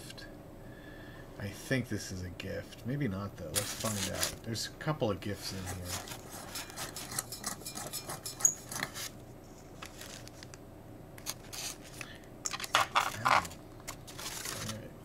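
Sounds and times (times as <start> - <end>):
styrofoam packing rustling: 3.5 - 4.4, 8.8 - 10.6, 11.2 - 14.9.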